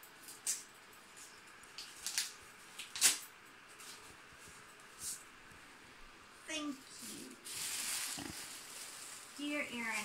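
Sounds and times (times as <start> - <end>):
packaging paper crinkling: 7.0 - 10.0.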